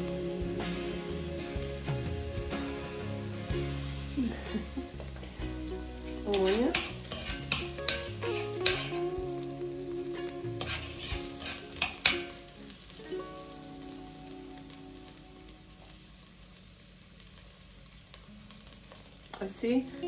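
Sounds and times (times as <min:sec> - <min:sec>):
onion and garlic sizzling in oil: 0:00.0 - 0:20.0
spoon scraping and knocking pot: 0:06.4 - 0:09.0, 0:10.6 - 0:12.2.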